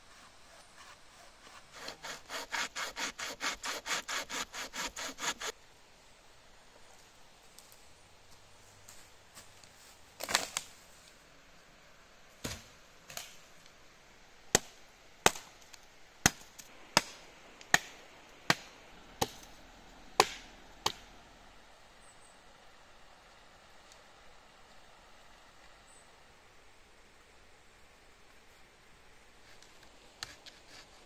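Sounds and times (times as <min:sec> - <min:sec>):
wood being chopped: 0:14.6 - 0:15.5, 0:16.2 - 0:19.5, 0:20.2 - 0:21.0.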